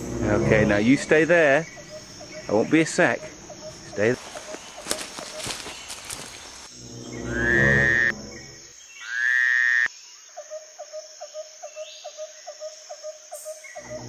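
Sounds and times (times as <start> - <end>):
rhythmic chirping: 0.0 - 8.7.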